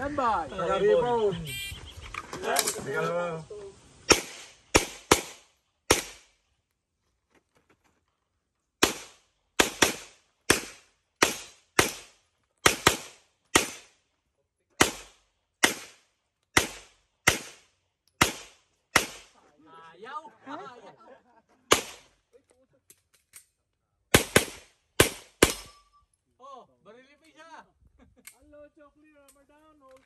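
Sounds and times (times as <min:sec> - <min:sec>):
pistol shots with echo: 0:04.1 - 0:06.3, 0:08.8 - 0:13.9, 0:14.8 - 0:16.0, 0:16.6 - 0:17.6, 0:18.2 - 0:19.3, 0:24.1 - 0:25.7.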